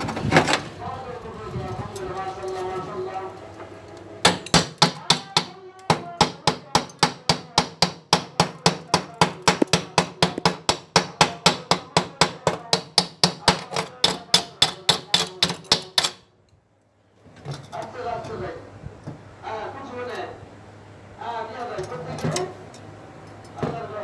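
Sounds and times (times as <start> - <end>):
chipping hammer striking metal: 4.2 - 16.2.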